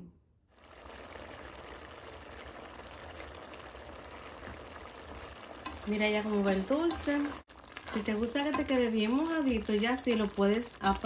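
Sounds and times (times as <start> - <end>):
thick mixture bubbling in a pot: 0.5 - 11.0.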